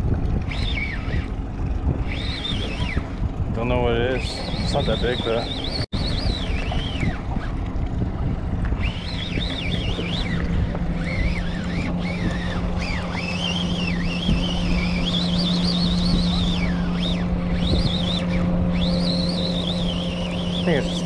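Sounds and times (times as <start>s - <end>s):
outboard motor running: 0.0s - 21.0s
wind and water noise: 0.0s - 21.0s
thin high whine: 0.4s - 3.2s, 8.6s - 21.0s.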